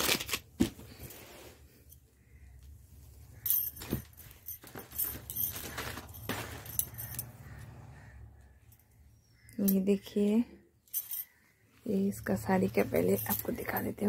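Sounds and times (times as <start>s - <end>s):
plastic and cloth crinkling: 0.0s - 1.9s, 3.2s - 7.4s.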